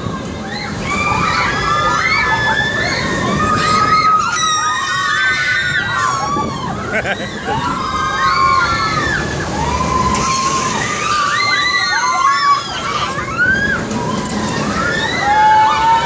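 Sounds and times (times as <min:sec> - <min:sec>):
steady rushing noise: 0:00.0 - 0:16.0
riders screaming: 0:00.5 - 0:16.0.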